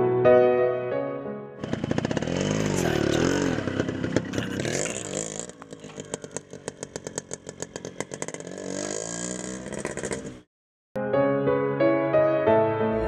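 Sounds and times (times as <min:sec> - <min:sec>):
motorcycle engine revving: 0:01.6 - 0:10.5.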